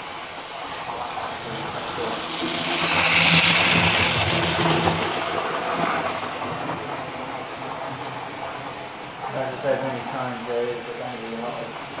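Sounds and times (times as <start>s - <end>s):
wheels running on rails: 0.0s - 9.4s
model train motor whirring: 0.9s - 7.0s.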